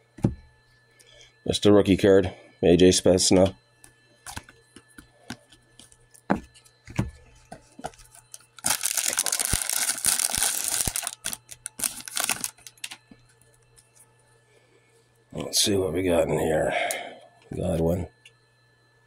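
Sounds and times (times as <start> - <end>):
foil wrapper crinkling and tearing: 8.2 - 13.0.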